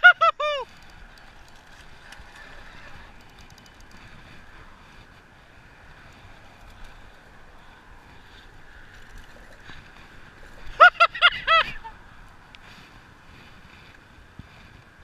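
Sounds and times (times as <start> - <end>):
spinning reel cranking: 0.6 - 4.2
faint ticks: 0.6 - 5.2, 5.8 - 10.6.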